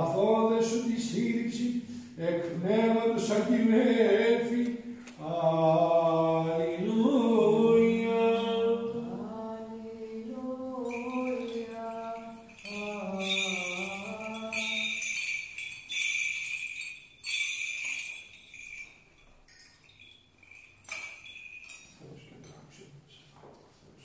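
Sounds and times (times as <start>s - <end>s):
person chanting: 0.0s - 15.3s
censer bells jingling: 10.8s - 22.1s.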